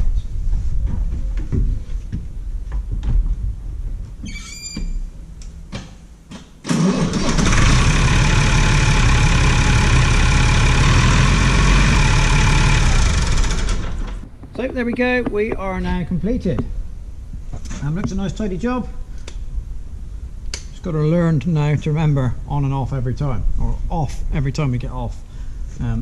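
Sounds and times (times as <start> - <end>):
diesel tractor engine starting: 6.6 - 14.3.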